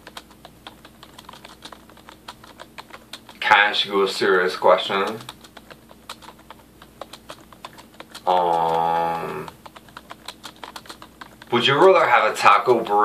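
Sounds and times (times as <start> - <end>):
keyboard typing clicks: 0.0 - 3.4, 5.0 - 11.5.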